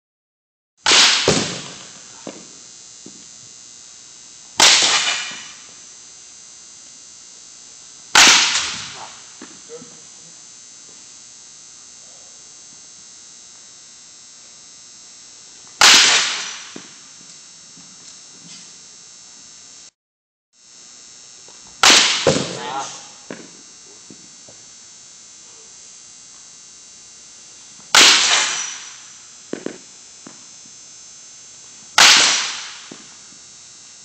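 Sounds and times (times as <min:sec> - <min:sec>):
bat cracking against ball: 0:00.9 - 0:03.3, 0:04.6 - 0:05.8, 0:08.1 - 0:09.7, 0:15.8 - 0:17.1, 0:21.5 - 0:24.2, 0:27.8 - 0:30.4, 0:32.0 - 0:33.3.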